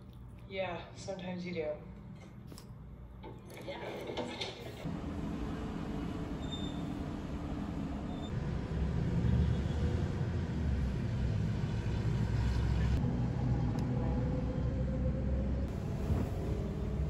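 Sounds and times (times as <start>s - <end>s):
city traffic rumble: 4.2s - 17.0s.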